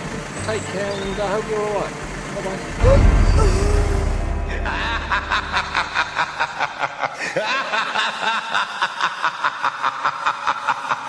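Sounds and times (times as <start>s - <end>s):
person laughing: 4.6s - 11.0s.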